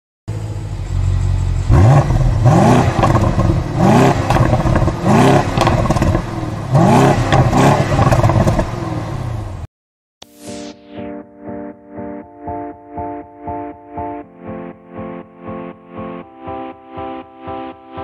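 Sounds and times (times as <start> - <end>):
car engine idling: 0.3 - 9.6
car engine revving: 0.3 - 9.6.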